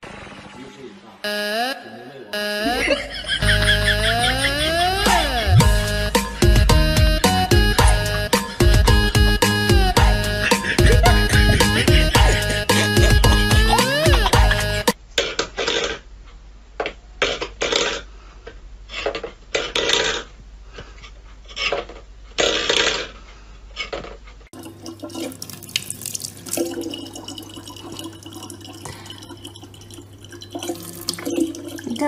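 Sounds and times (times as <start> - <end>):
tap water running into bottle: 24.6 - 32.0.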